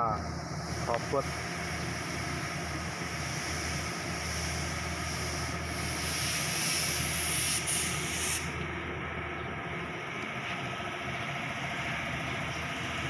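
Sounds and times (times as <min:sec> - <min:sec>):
diesel engine idling: 0:00.0 - 0:13.0
loud air hiss: 0:00.2 - 0:08.7.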